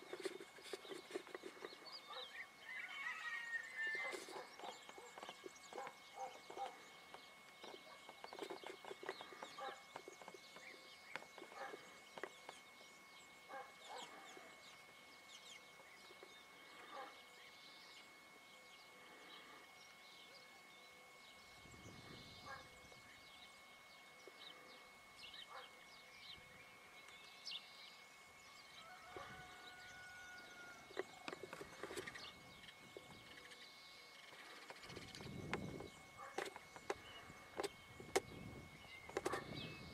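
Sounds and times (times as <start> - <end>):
faint ticks and rustles: 0.0 - 20.6, 28.7 - 39.7
faint high whine: 0.0 - 39.9.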